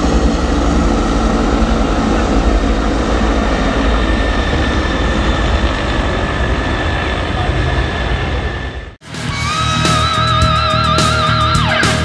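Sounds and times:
helicopter rotor rumble: 0.0s - 12.0s
high turbine whine: 0.0s - 12.0s.

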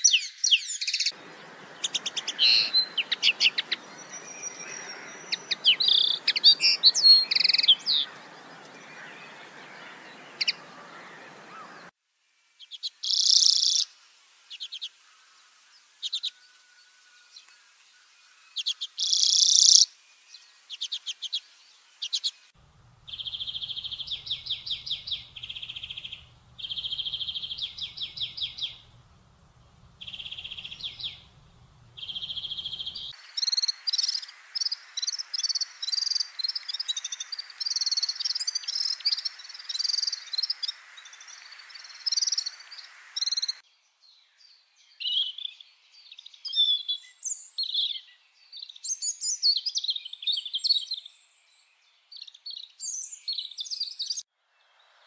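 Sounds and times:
bird song phrases: 0.0s - 11.9s, 12.6s - 13.9s, 15.7s - 55.0s
chorus of overlapping bird chirps: 0.0s - 11.9s, 12.7s - 13.9s, 15.6s - 54.8s
bird trilling call: 0.1s - 11.8s, 23.1s - 29.0s, 30.0s - 34.3s.

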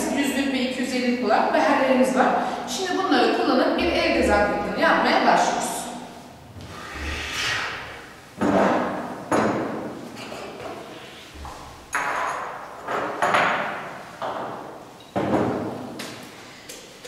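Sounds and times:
glassware knocking and clinking: 11.9s - 13.8s.

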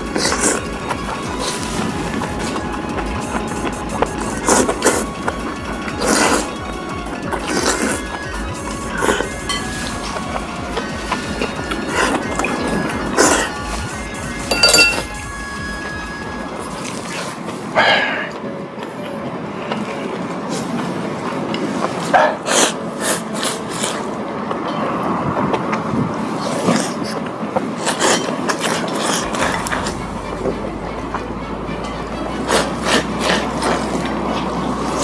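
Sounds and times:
background din: 0.0s - 16.8s, 29.1s - 35.0s
noodles slurped: 0.0s - 18.5s, 20.5s - 35.0s.

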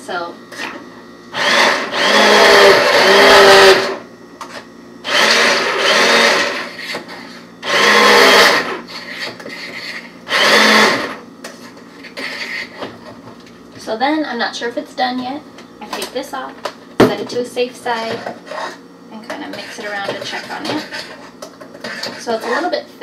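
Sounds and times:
immersion blender motor whine: 0.5s - 11.2s, 12.0s - 12.9s.

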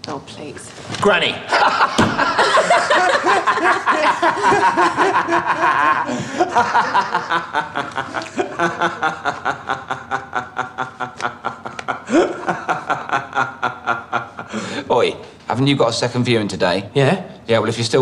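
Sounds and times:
people laughing: 1.4s - 14.9s.

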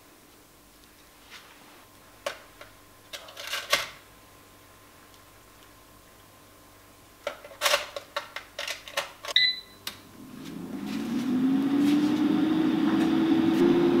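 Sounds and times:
air fryer fan humming: 1.9s - 14.0s
short electronic beep: 9.4s - 9.8s.

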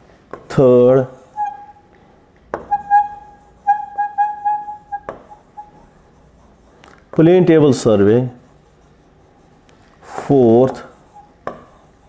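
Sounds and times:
pen squeaking on glass: 1.2s - 1.8s, 2.6s - 6.2s, 10.8s - 12.0s.

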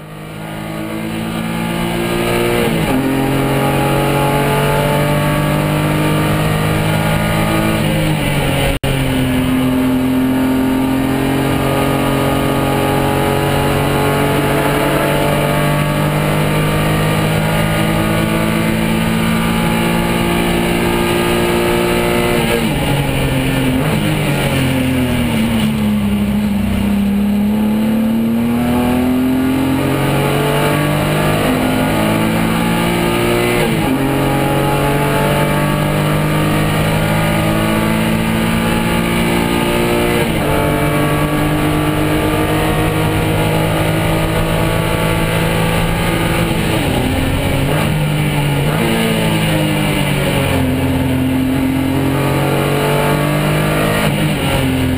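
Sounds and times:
race car engine accelerating: 0.0s - 54.9s.

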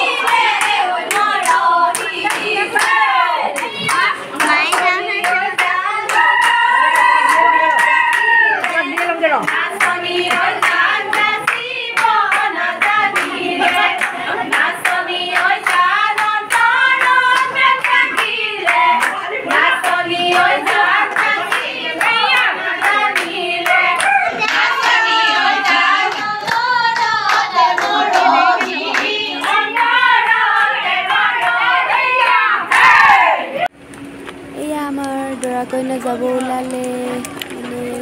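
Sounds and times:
women singing folk song: 0.0s - 6.8s, 8.8s - 33.4s
hand clapping: 0.2s - 25.0s, 26.1s - 29.9s.

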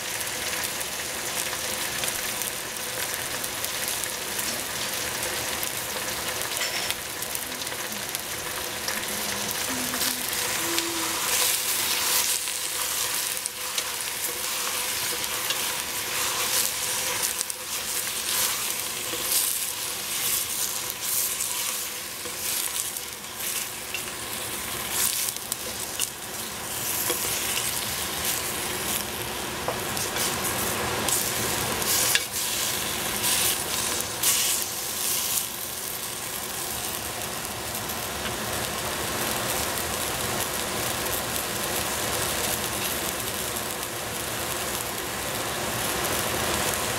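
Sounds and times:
vegetables sizzling in a pot: 0.0s - 46.9s.

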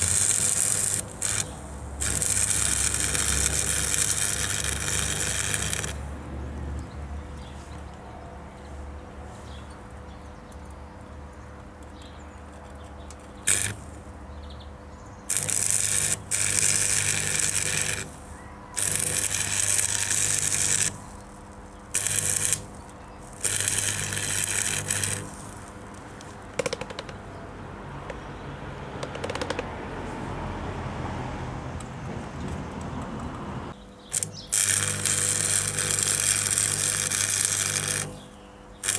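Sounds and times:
welding arc crackling and hissing: 0.0s - 6.1s, 13.4s - 14.2s, 15.3s - 26.5s, 34.1s - 38.9s.

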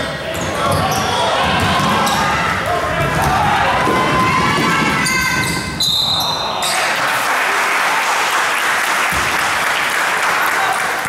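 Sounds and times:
basketball bouncing: 0.3s - 5.8s
referee's whistle: 5.0s - 6.4s.

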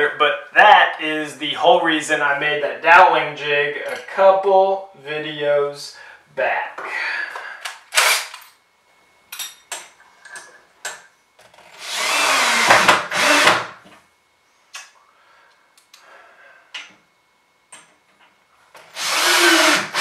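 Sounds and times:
cordless drill screwing: 11.8s - 13.5s, 19.0s - 20.0s.

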